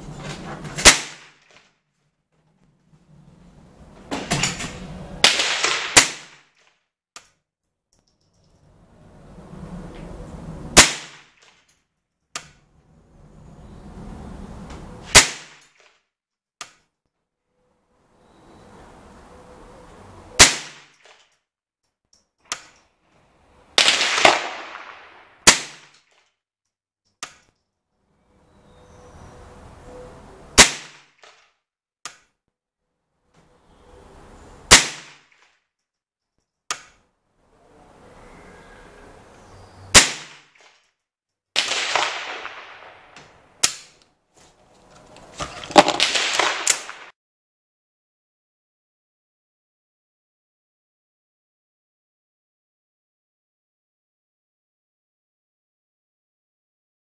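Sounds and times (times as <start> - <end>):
rifle shots: 0.8 - 1.4, 5.2 - 6.4, 10.8 - 11.3, 15.1 - 15.6, 20.4 - 20.9, 23.8 - 25.9, 30.6 - 31.0, 34.7 - 35.2, 39.9 - 40.4, 41.6 - 43.8, 45.8 - 47.1.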